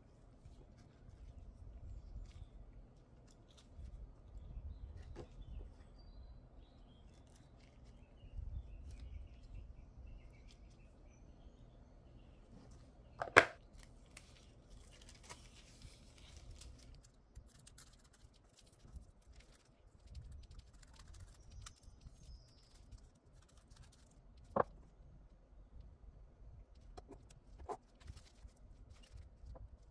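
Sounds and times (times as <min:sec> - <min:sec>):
foil crinkling: 0:13.7 - 0:24.6, 0:27.7 - 0:29.9.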